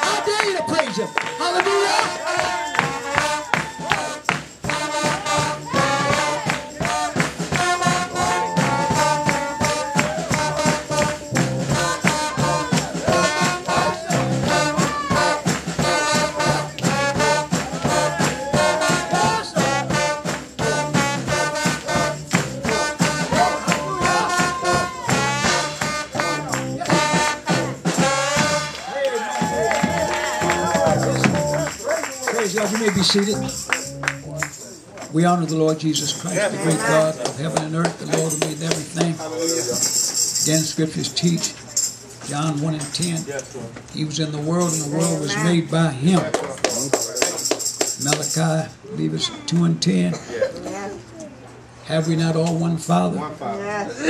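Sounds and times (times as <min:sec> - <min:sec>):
percussion beat: 0:00.0 - 0:49.9, 0:51.9 - 0:53.1
handclaps: 0:00.4 - 0:05.2, 0:06.0 - 0:14.3, 0:21.6 - 0:27.2, 0:28.4 - 0:35.1, 0:37.2 - 0:40.3, 0:46.1 - 0:48.4
people singing praise music: 0:01.4 - 0:31.7.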